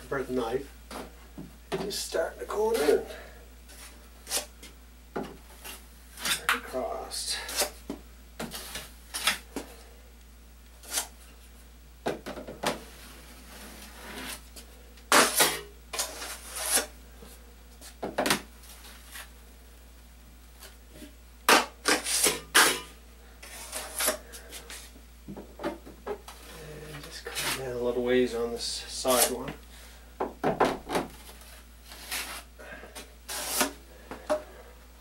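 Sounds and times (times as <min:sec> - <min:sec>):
drywall knife scraping: 0:15.1 - 0:16.9, 0:21.5 - 0:22.8, 0:23.4 - 0:24.8, 0:31.9 - 0:32.5, 0:33.3 - 0:33.8.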